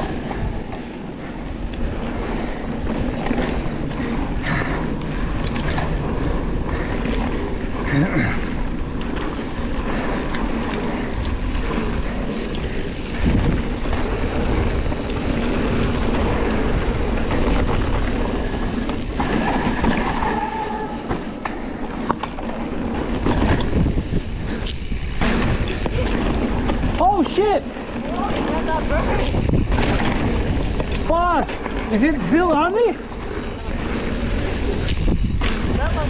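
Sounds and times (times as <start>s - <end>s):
bike frame and chain rattling: 0.0s - 36.0s
bike tyres rumbling over dirt: 0.0s - 36.0s
short squeal: 20.0s - 21.4s.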